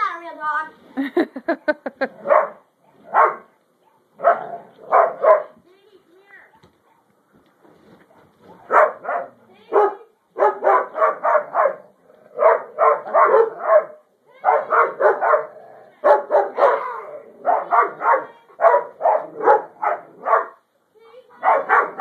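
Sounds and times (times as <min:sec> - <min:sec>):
dog barking: 0:02.2 - 0:05.6, 0:06.5 - 0:07.1, 0:08.1 - 0:20.6, 0:21.4 - 0:22.0.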